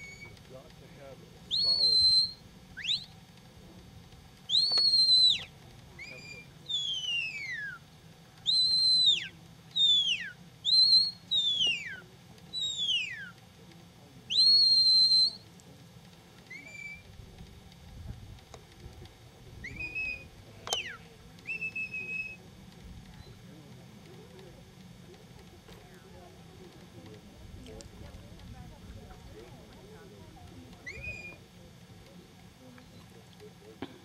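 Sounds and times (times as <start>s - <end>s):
sharp whistle blasts: 1.5s - 3.1s, 4.5s - 7.8s, 8.4s - 13.3s, 14.3s - 15.4s, 16.5s - 17.1s, 19.6s - 22.4s, 30.8s - 31.4s.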